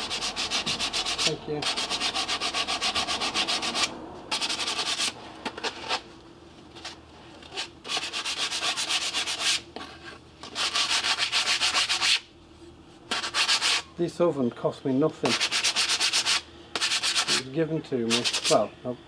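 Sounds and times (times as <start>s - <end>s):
sanding sheet metal: 0.0s - 5.2s, 7.8s - 9.6s, 10.4s - 12.2s, 13.1s - 13.8s, 15.3s - 17.5s, 18.1s - 18.6s.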